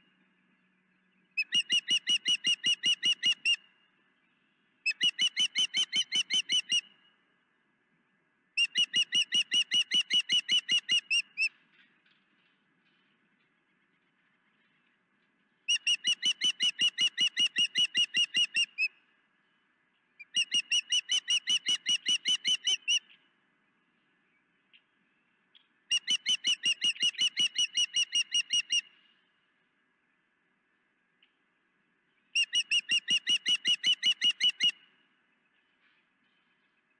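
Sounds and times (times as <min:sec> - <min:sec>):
bird rapid high chirps: 0:01.4 - 0:03.6, 0:04.9 - 0:06.9, 0:08.6 - 0:11.6, 0:15.7 - 0:19.0, 0:20.2 - 0:23.2, 0:25.9 - 0:29.0, 0:32.3 - 0:34.8.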